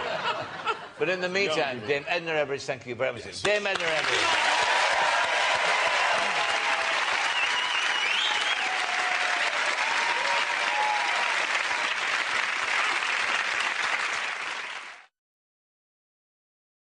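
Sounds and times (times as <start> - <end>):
audience applauding: 3.7 - 15.1.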